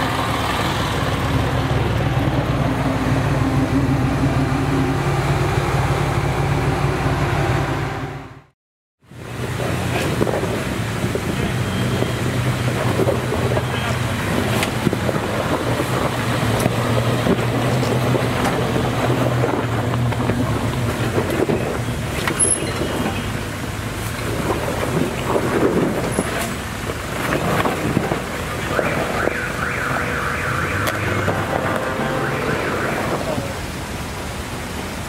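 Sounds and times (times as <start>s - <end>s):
vehicle engine humming: 0.0s - 8.5s, 9.1s - 35.0s
wind noise on microphone: 9.8s - 23.2s.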